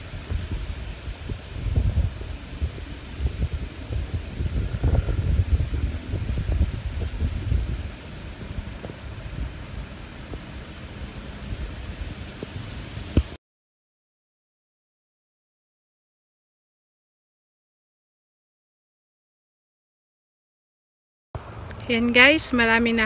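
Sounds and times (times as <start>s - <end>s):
wind buffeting microphone: 0.0s - 13.4s.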